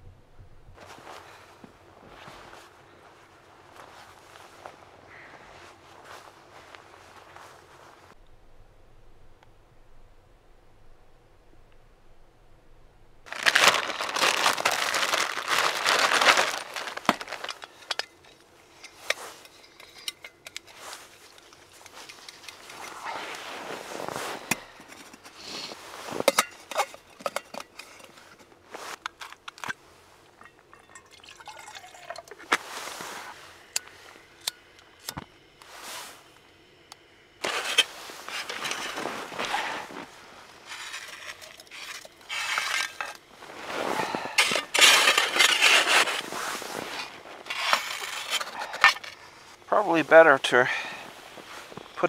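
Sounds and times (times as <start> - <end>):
snow scraping and crunching: 0.8 - 8.2, 13.2 - 20.1, 20.7 - 27.2, 27.8 - 29.0, 32.4 - 34.4, 35.6 - 36.4, 37.4 - 52.0
metal mug and pot clinking: 17.8 - 23.1, 30.4 - 32.5, 40.7 - 43.2.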